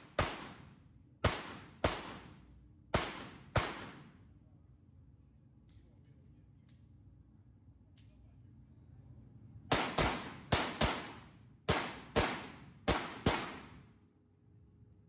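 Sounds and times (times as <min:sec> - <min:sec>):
pistol shots echoing: 0:00.0 - 0:04.2, 0:09.7 - 0:13.9.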